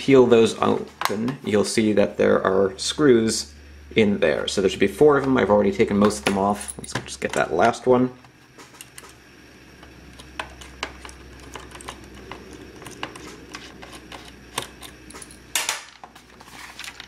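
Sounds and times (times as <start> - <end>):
screwdriver clicking and scraping: 10.1 - 15.4.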